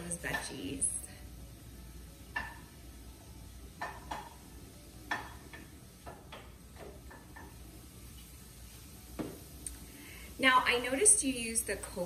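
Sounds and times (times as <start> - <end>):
wooden spatula clacking on frying pan: 2.3 - 2.8, 3.8 - 4.4, 5.1 - 7.6.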